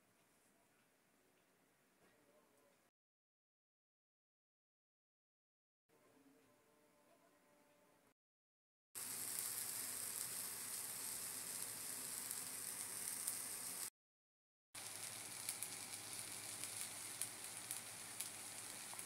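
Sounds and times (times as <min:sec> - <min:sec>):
rice sizzling in a pan: 0:09.0 - 0:13.9, 0:14.8 - 0:19.0.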